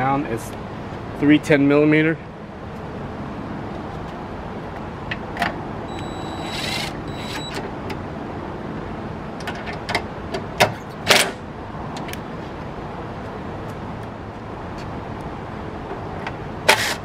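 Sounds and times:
impact driver whining: 0:05.9 - 0:07.6.

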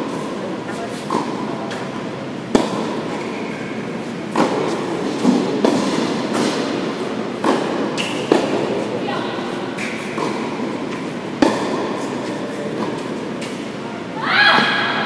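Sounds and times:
tennis balls struck by rackets: 0:00.0 - 0:13.8
steady background noise: 0:00.0 - 0:15.0.

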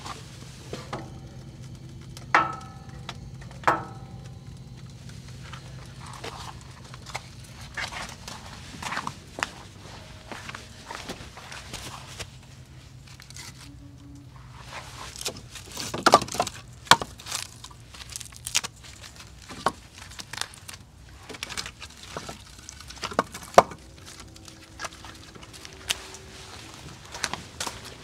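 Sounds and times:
logs crackling and popping in fire: 0:00.0 - 0:28.0.

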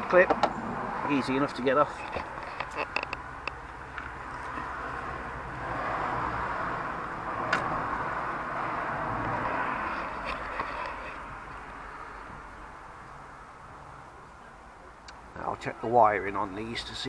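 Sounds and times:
vehicle passing by: 0:00.0 - 0:12.9.

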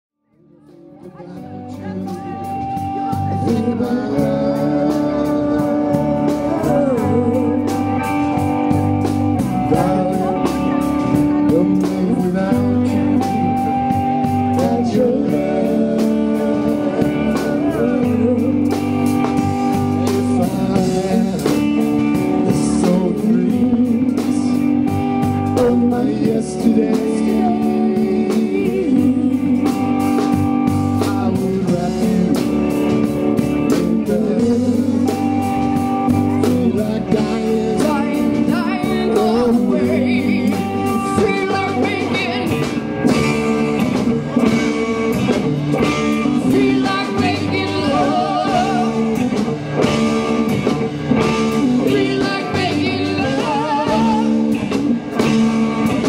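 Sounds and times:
live blues-rock band: 0:00.4 - 0:56.0.

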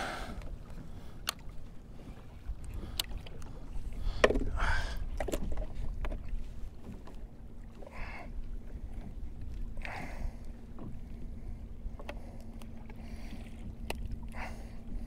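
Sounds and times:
wind and water low rumble: 0:00.0 - 0:15.0.

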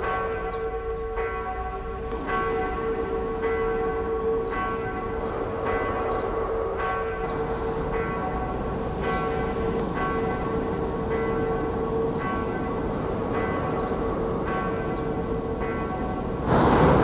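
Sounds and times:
church bells ringing: 0:00.0 - 0:17.0
low rushing noise: 0:06.3 - 0:11.1, 0:16.3 - 0:17.0.

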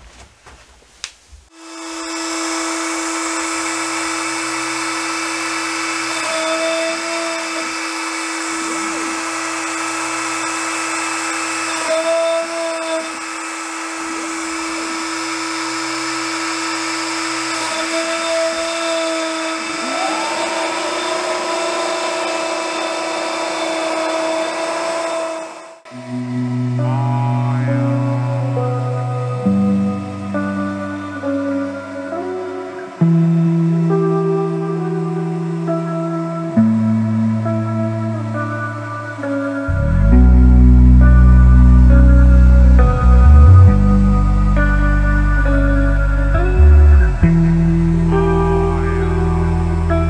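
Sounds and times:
router spindle whining: 0:01.5 - 0:33.2
end mill cutting plywood: 0:01.6 - 0:29.6.

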